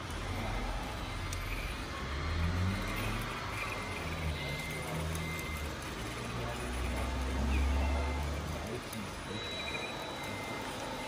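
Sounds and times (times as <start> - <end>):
model truck motor humming: 0.0 - 11.0.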